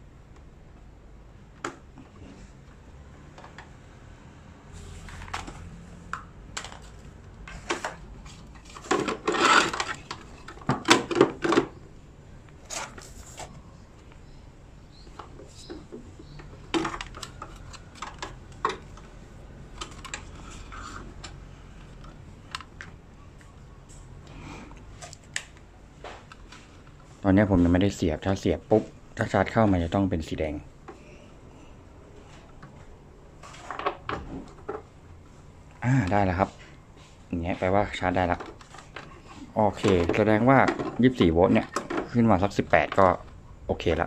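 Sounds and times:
cables and plastic box handled: 4.9 - 11.8, 12.4 - 14.3, 14.9 - 24.0, 37.6 - 43.4.

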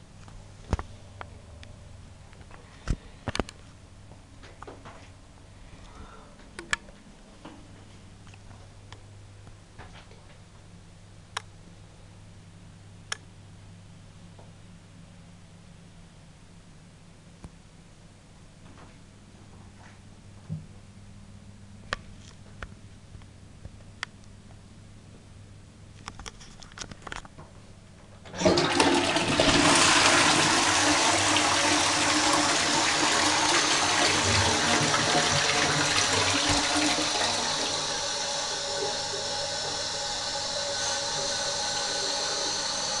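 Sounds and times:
toilet flush water rushing: 28.3 - 43.0.

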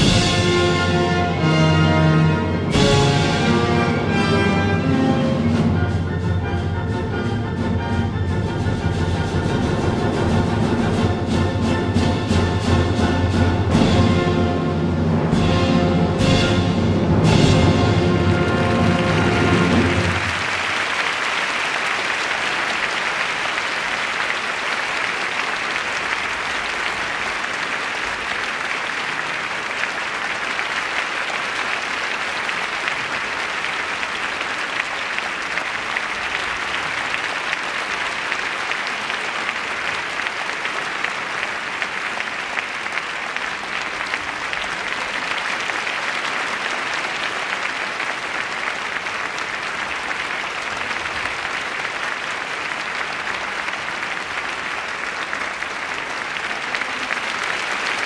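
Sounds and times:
audience applauding: 17.8 - 58.0.

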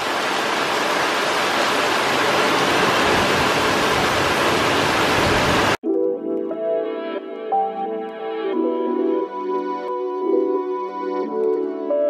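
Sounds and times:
heavy rain pouring: 0.0 - 5.8.

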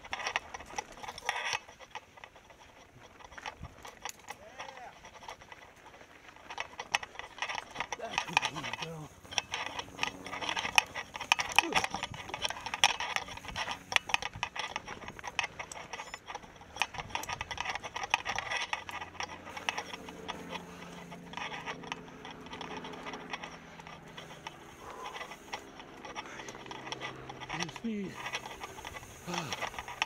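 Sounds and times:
bike rattling over rocks: 0.0 - 30.0
steady low hum: 0.0 - 30.0.

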